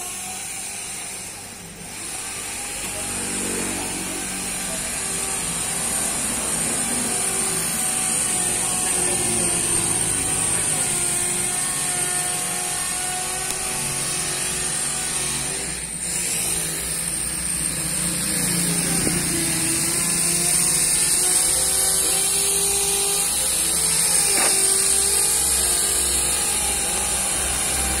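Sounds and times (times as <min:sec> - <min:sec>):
vehicle engine running: 0:16.0 - 0:21.6.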